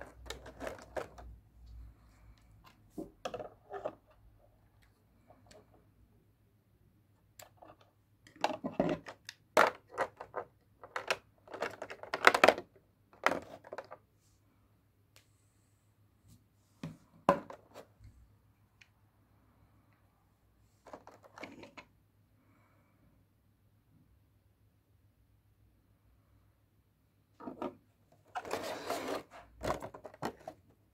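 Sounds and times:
plastic parts clicking: 7.4 - 14.0.

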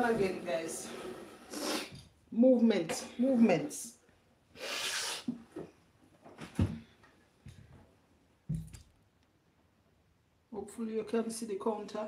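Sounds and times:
soft knocks and bumps: 8.5 - 8.8.

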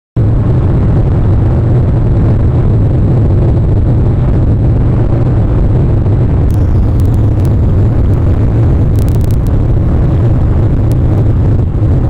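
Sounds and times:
wind buffeting microphone: 0.2 - 12.0
rough sea washing: 6.5 - 12.0.

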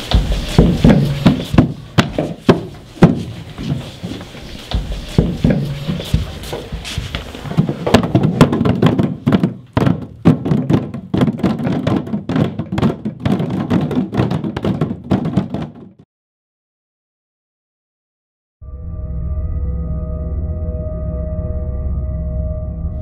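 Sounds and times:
hands drumming: 0.0 - 16.0.

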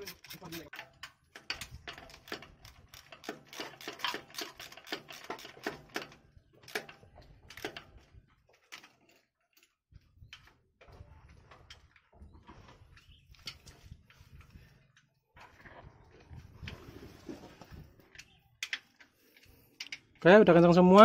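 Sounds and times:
ratchet wrench clicking: 0.0 - 6.1.

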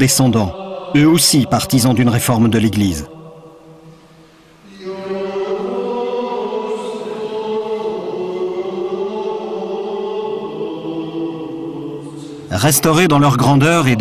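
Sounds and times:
men's choir chanting: 0.0 - 12.7.

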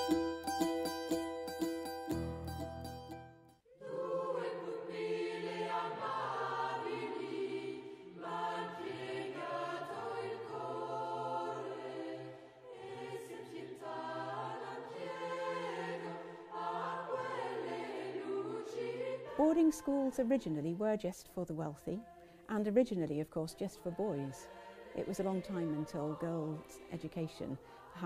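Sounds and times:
choir singing held chords: 3.6 - 20.6, 23.6 - 28.0.

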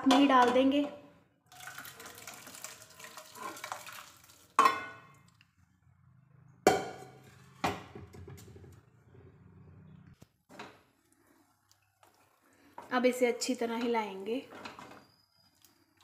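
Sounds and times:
water pouring and splashing: 1.5 - 5.4
metal pots clanking: 4.6 - 5.2.

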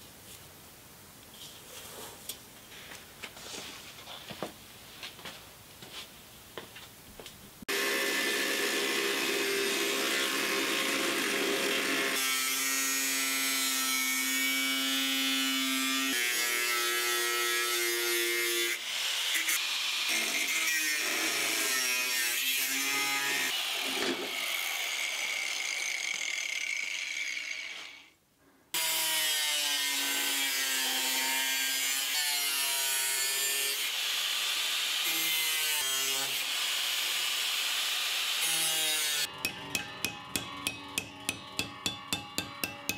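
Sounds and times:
angle grinder cutting steel: 7.7 - 28.1, 28.8 - 42.9.

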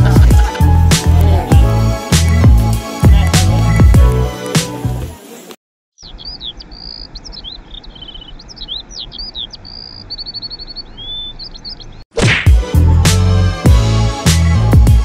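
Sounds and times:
songbird singing: 6.0 - 12.1.

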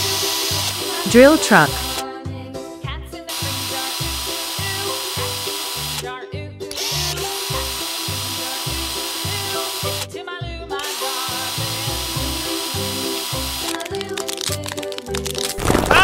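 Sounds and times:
cartoon hammer drill: 0.0 - 2.0, 3.3 - 6.1, 6.7 - 10.1, 10.8 - 13.9.

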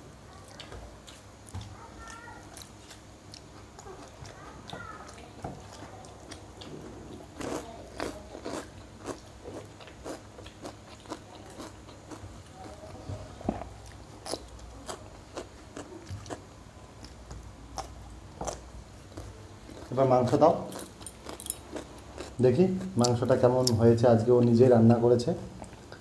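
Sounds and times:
crunching food: 0.4 - 23.8
mouth chewing sounds: 0.4 - 23.8.

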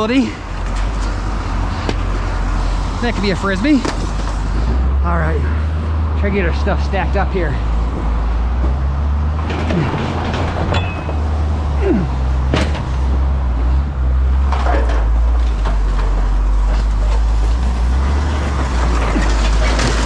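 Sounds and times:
engine running low: 0.0 - 20.0
scrap metal clanking: 9.4 - 11.5.

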